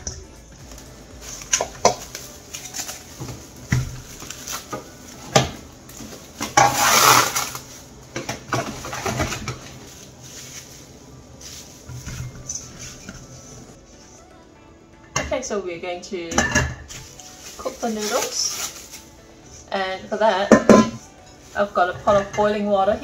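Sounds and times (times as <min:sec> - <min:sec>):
cling wrap crinkling: 0:00.4 - 0:08.0, 0:16.9 - 0:19.7.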